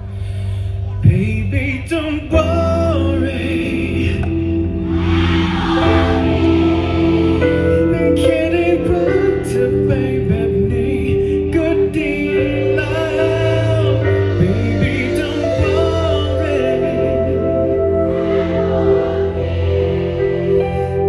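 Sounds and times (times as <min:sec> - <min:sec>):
live band playing slow song: 0:00.0 - 0:21.0
man singing into microphone: 0:01.0 - 0:04.7, 0:07.8 - 0:18.2.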